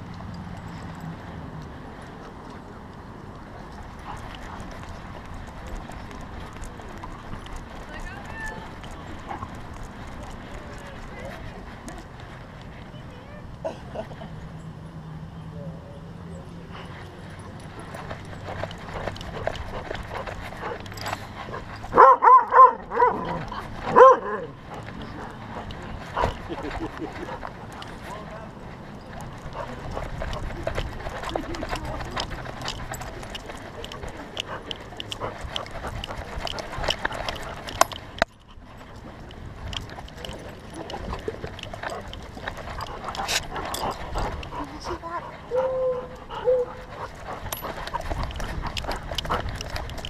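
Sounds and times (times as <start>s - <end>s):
dog barking: 21.9s - 24.5s.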